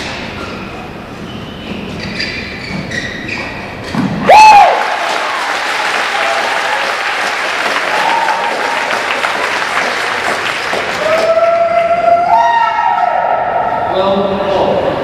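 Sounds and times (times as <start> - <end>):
audience applauding: 4.5 - 12.3.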